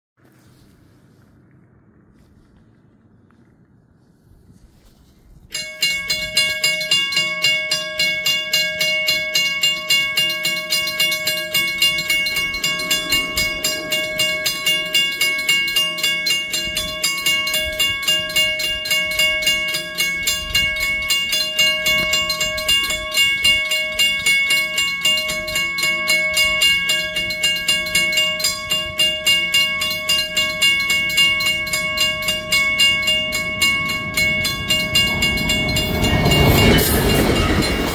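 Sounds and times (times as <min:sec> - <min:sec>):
railroad crossing bells ringing: 0:05.5 - 0:37.9.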